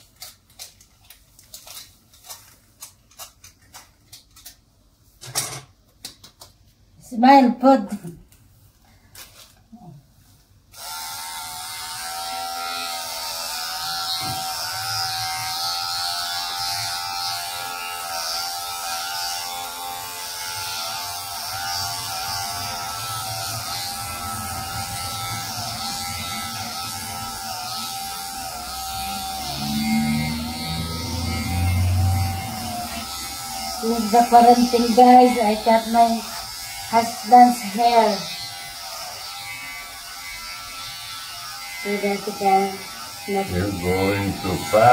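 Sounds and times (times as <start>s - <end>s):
electric hair clippers buzzing: 10.7s - 44.9s.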